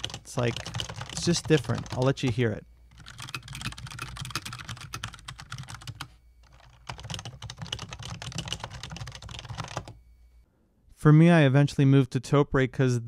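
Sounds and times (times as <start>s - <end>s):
rapid typing on keyboards: 0.0s - 10.0s.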